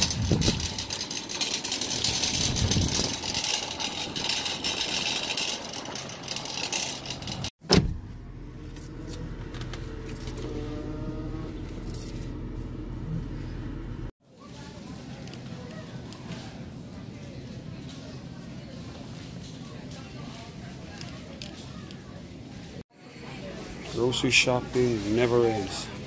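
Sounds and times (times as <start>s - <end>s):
metallic jangling rattle: 0.0s - 7.5s
car running hum: 7.6s - 14.1s.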